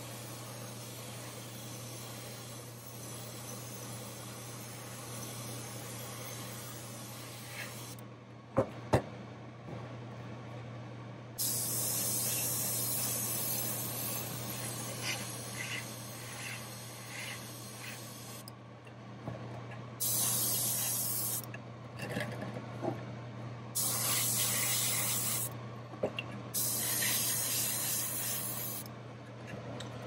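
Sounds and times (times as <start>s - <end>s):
airbrush spraying hiss: 5.1s - 8.0s, 11.4s - 18.4s, 20.0s - 21.5s, 23.8s - 25.5s, 26.6s - 28.9s.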